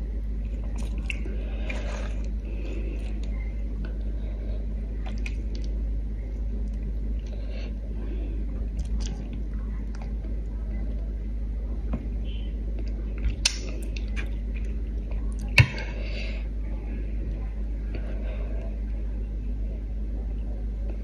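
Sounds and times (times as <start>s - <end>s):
low hum: 0.0s - 21.0s
chewing: 0.4s - 4.1s, 8.6s - 10.9s.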